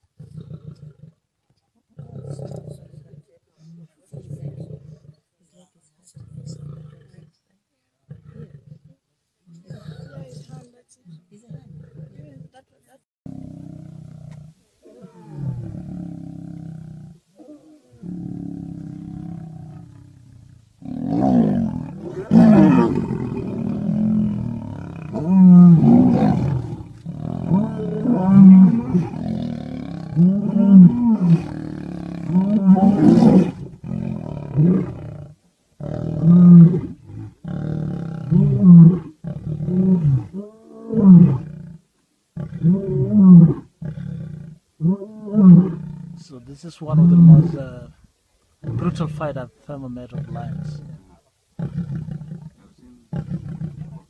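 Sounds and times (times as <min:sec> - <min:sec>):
lions roaring: 0:13.4 - 0:41.6.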